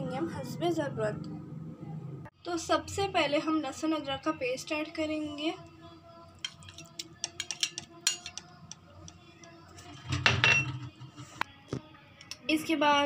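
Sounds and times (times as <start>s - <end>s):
metal spoon clinking on steel pot: 6.4s - 11.0s.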